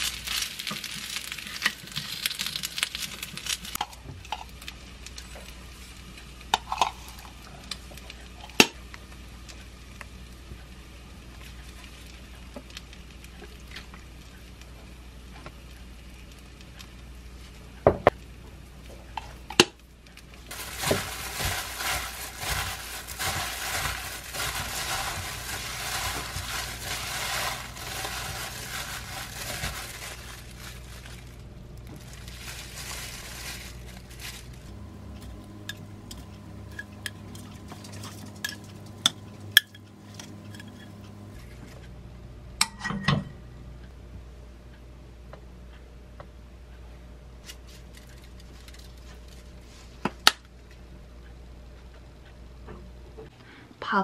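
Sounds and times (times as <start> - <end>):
chives rustling in bowl: 0.0 - 3.8, 20.5 - 41.8, 47.5 - 50.0.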